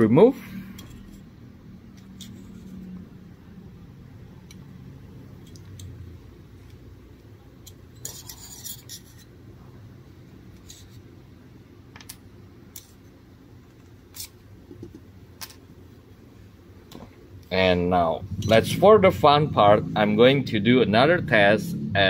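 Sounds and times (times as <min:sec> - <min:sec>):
metal scraper rasping: 0:08.0 - 0:09.3.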